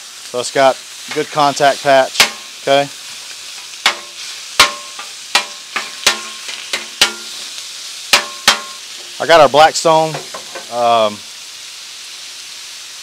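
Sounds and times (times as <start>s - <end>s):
meat sizzling: 0.0s - 13.0s
metal chopper clacking on griddle: 2.1s - 2.5s, 3.8s - 7.4s, 8.1s - 8.8s.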